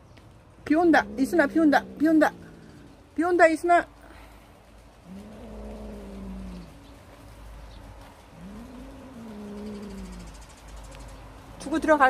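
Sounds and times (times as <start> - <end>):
cat growling low: 0.8 - 3.0, 5.0 - 6.8, 8.3 - 10.4.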